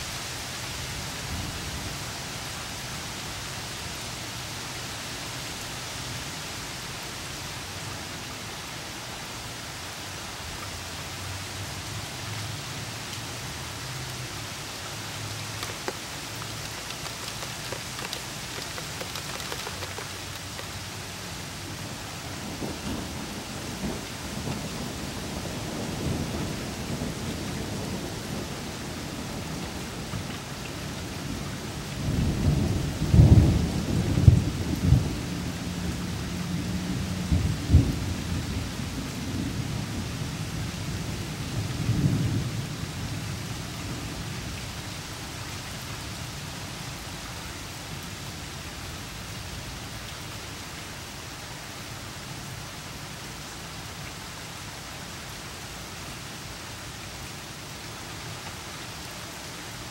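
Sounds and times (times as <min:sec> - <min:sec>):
steady rain: 0:00.0 - 0:59.9
thunder rumbling and cracking: 0:32.1 - 0:36.0.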